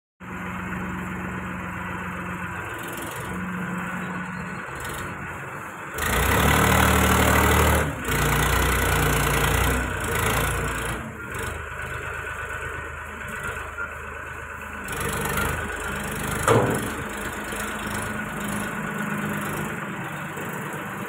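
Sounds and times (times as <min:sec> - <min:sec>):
tractor diesel engine running: 0:00.2 - 0:21.0.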